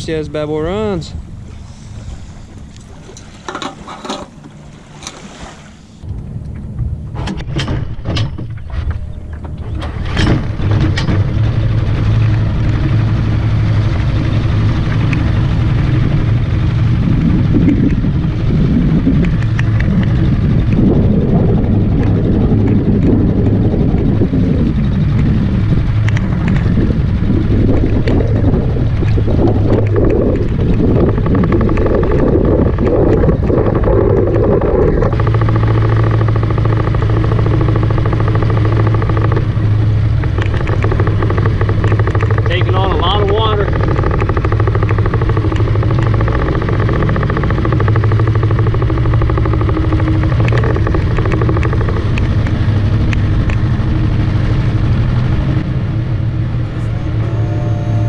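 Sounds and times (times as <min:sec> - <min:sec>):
boat motor running: 0:00.0 - 0:58.0
sharp knocks: 0:29.8 - 0:53.6.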